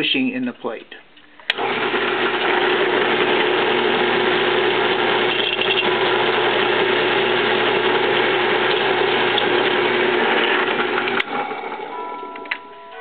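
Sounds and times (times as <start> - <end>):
drill press motor humming: 1.2 - 13.0
drill bit cutting brass: 3.3 - 11.5.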